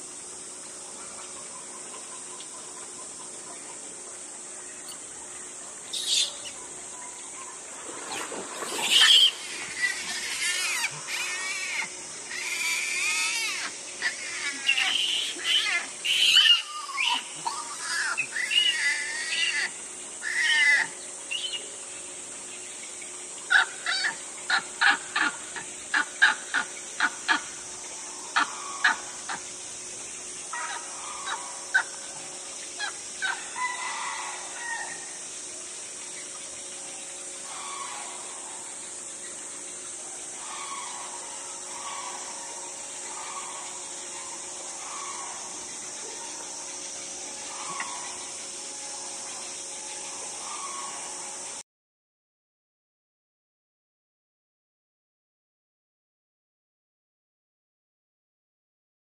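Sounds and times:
steady high hiss: 0.0 - 51.6
short sharp monkey calls: 5.9 - 6.5, 8.1 - 21.6
monkeys screaming and squealing: 5.9 - 6.6, 8.1 - 21.6, 23.5 - 27.5, 30.5 - 32.0, 40.3 - 49.2.

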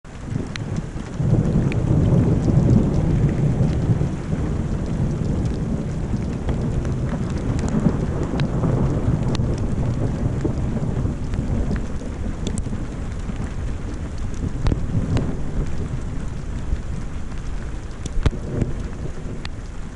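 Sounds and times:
falling rain: 0.0 - 19.9
thunder rumbling: 0.1 - 19.9
water drops ticking: 18.0 - 19.6.

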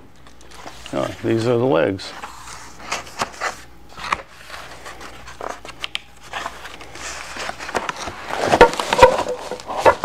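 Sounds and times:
cardboard flaps rustling and scraping: 2.1 - 10.0
knocks and scrapes: 7.4 - 10.0.

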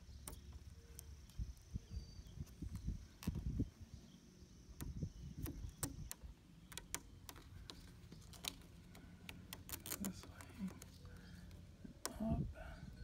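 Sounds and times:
sticker film crackling and clicking: 4.8 - 11.0.

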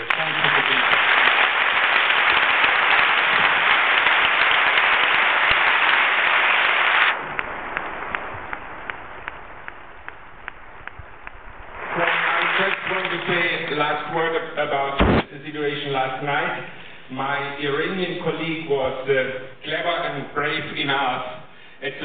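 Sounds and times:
audience applauding: 0.0 - 14.4
scattered claps: 0.0 - 14.4.

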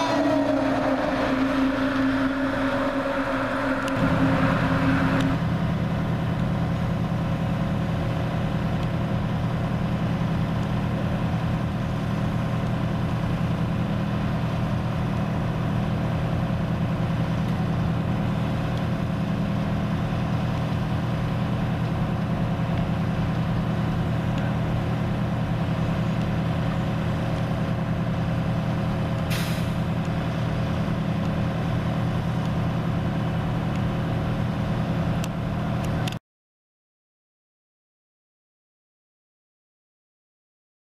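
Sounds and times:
diesel engine running: 0.0 - 36.2
short hiss: 29.3 - 29.8.

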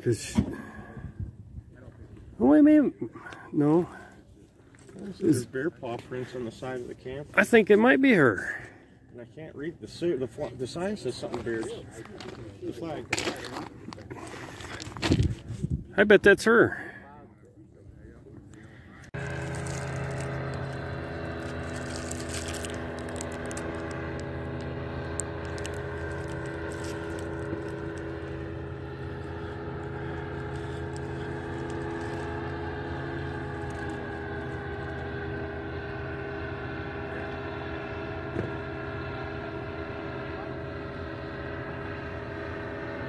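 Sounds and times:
paramotor engine drone: 16.7 - 43.0.

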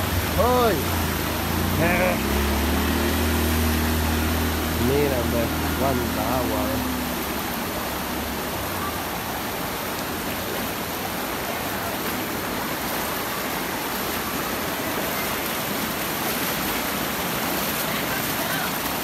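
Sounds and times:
floodwater rushing: 0.0 - 19.0.

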